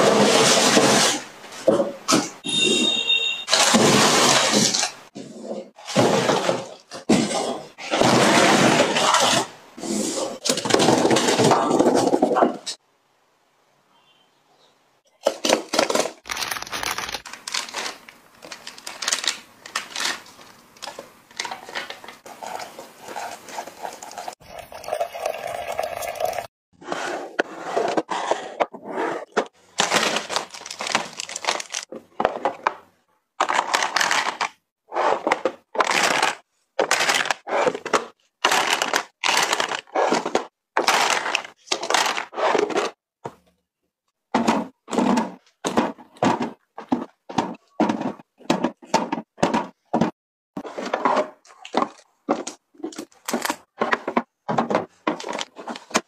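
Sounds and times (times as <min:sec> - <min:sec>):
packaging crinkling and tearing: 0:15.4 - 0:22.2, 0:29.8 - 0:31.9, 0:33.4 - 0:34.6, 0:35.8 - 0:42.7, 0:51.5 - 0:53.6.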